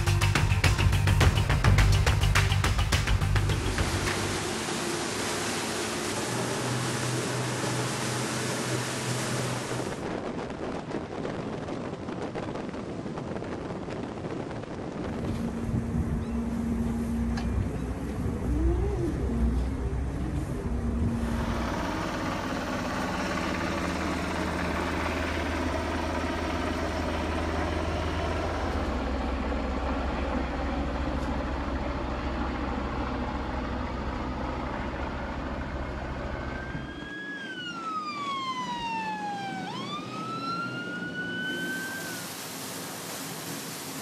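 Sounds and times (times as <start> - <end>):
boat engines running: 0.0 - 44.0
siren sweeping: 36.1 - 42.6.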